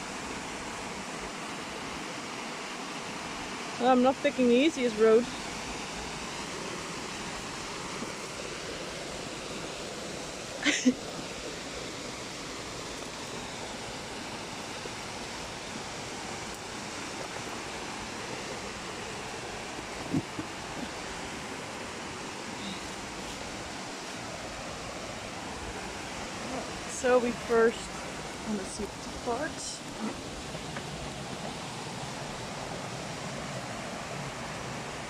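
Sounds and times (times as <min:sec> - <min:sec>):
waterfall rushing over rocks: 0:00.0 - 0:35.0.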